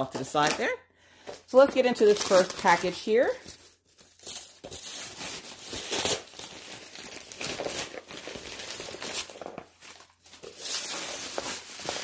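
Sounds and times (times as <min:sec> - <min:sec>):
wrapping paper tearing and crumpling: 0:02.0 - 0:12.0.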